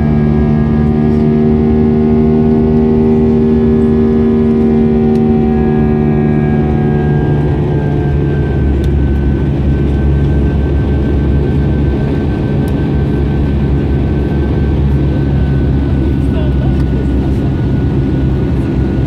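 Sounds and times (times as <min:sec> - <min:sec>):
jet engine rumble inside cabin: 0:00.0 - 0:19.0.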